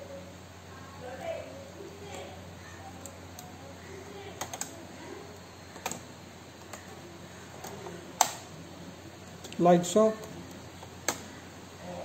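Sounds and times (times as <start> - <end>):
plastic snaps: 11.0 - 11.3.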